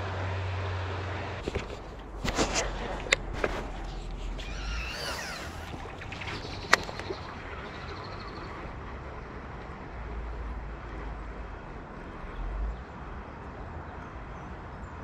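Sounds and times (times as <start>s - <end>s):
low outdoor rumble: 0.0s - 14.6s
bird call: 3.4s - 9.4s.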